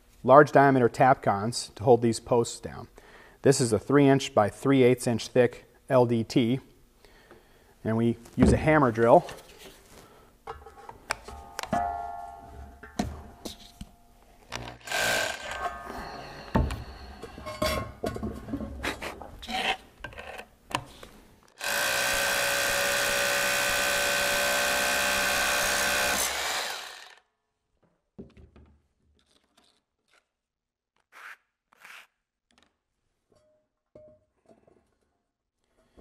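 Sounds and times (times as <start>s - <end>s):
hammer drill boring into stone: 14.6s - 16.9s, 21.6s - 27.2s
knocks and clatter of handling: 16.5s - 19.4s, 27.8s - 29.7s.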